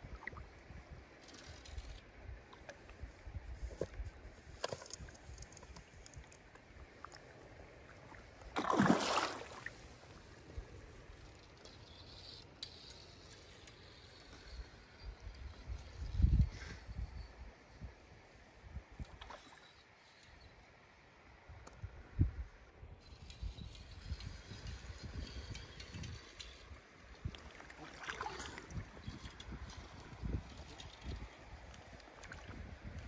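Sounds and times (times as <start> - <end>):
fish splashing in water: 8.6 - 9.7.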